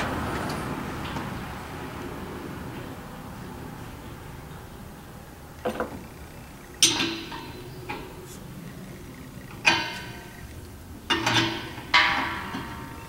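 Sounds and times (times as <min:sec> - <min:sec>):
metal clanks with ring: 0:06.7 - 0:13.0.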